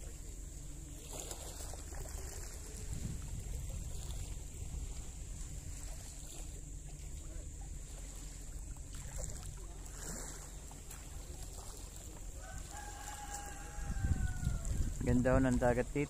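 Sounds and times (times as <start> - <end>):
wind rumble on microphone: 0.0 - 10.3, 12.3 - 16.0
distant rooster crowing: 12.3 - 15.0.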